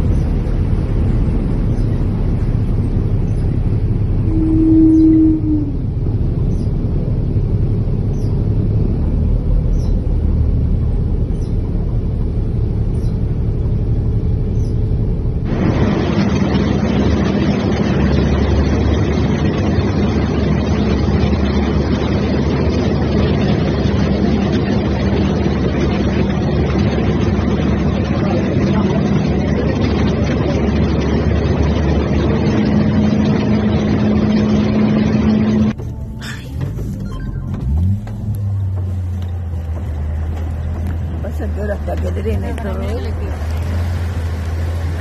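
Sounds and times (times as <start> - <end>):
vehicle engine rumbling: 0.0 - 45.0
rushing wash of water: 15.4 - 35.8, 38.9 - 45.0.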